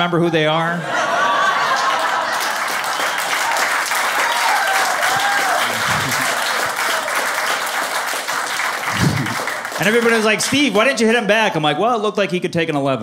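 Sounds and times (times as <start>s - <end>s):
audience applauding: 1.3s - 11.3s.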